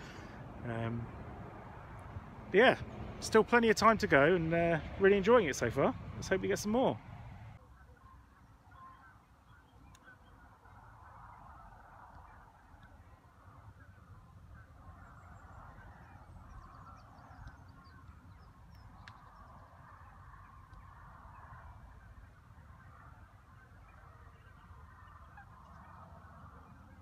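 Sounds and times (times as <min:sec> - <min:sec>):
geese honking: 0:21.6 - 0:27.0.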